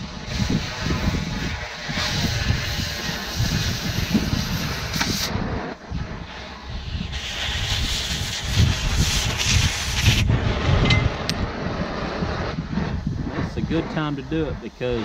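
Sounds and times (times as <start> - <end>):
cutting torch hissing: 0.0 - 15.0
low rumble: 3.4 - 7.2, 9.7 - 15.0.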